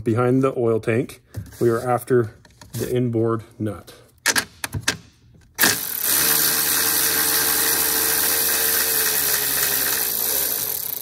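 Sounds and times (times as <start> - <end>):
cordless power tool whirring: 5.6 - 11.0.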